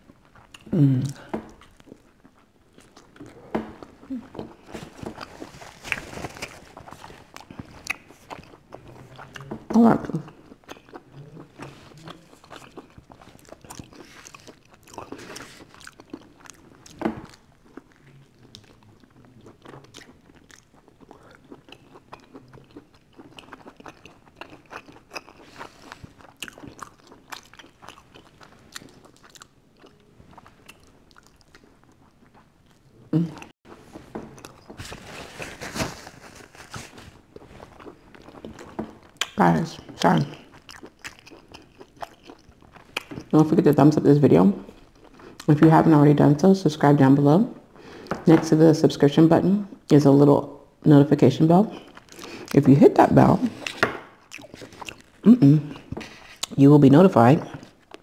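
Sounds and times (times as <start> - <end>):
chewing and biting pizza: 0.0 - 43.3, 53.5 - 56.6.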